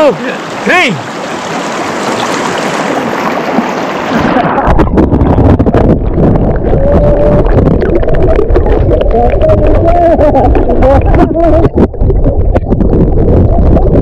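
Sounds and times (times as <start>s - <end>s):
river water rushing: 0.0s - 4.8s
underwater rumble: 0.4s - 14.0s.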